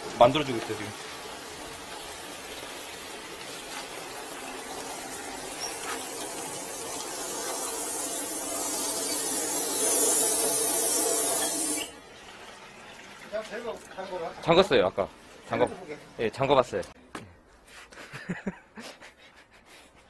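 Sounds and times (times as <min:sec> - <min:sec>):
water running from spout: 0:00.0 - 0:15.6
pressurised water hissing spray: 0:04.7 - 0:11.9.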